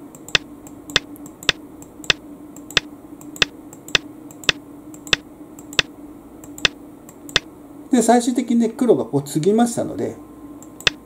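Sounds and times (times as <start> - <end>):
steady low hum: 0.0 - 11.0
sharp clicks: 0.2 - 7.5, 10.6 - 11.0.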